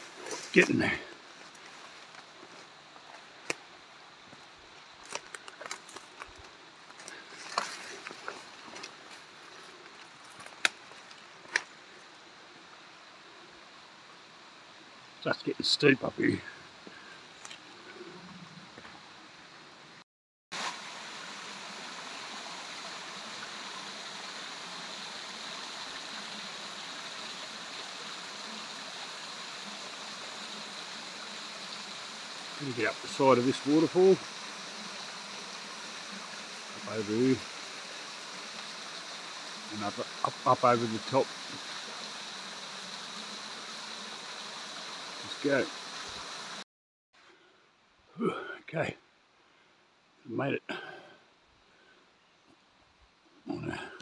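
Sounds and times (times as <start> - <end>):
footsteps on dry leaves and twigs: 0.0 - 3.7, 4.3 - 11.7
small waterfall splashing on rocks: 10.3 - 12.0, 20.5 - 46.6.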